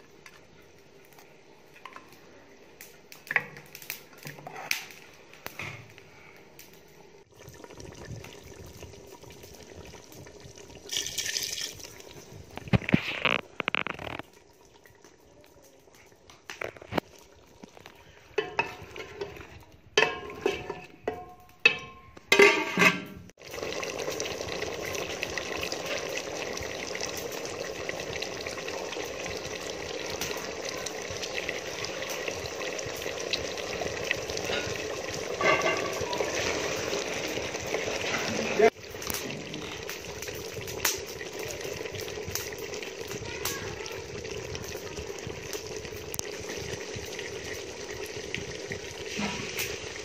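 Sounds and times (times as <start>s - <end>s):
curry bubbling and sizzling: 0.0s - 50.0s
ladle scraping pot: 17.7s - 23.3s, 34.4s - 38.6s.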